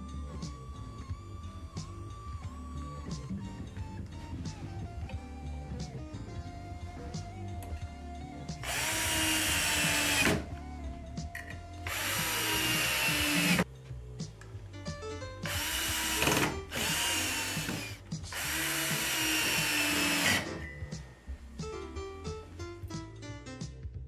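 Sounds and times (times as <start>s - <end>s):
cordless drill whining: 8.6s - 10.5s, 11.8s - 13.7s, 15.5s - 20.8s.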